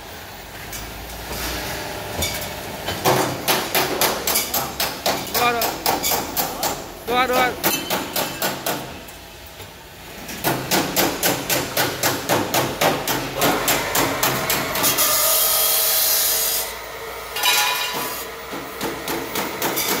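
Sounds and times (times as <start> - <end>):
steady hydraulic hiss: 13.4 - 16.8.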